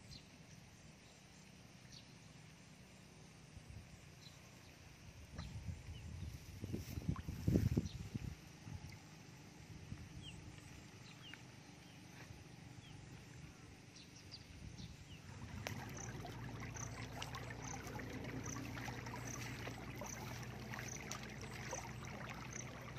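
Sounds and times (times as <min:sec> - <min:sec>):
low hum: 0:08.0 - 0:22.9
faint chirps: 0:15.0 - 0:22.9.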